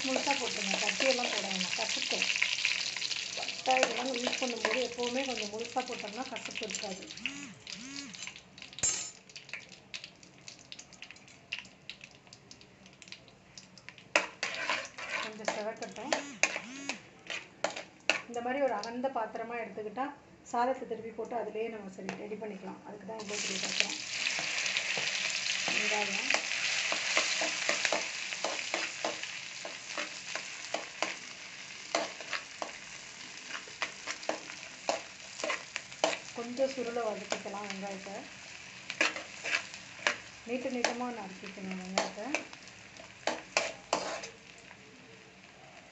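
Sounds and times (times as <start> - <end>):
spices crackling in hot oil: 0.0 - 19.2, 23.2 - 45.9
spatula scraping metal pan: 14.2 - 18.3, 39.0 - 40.2, 43.3 - 44.4.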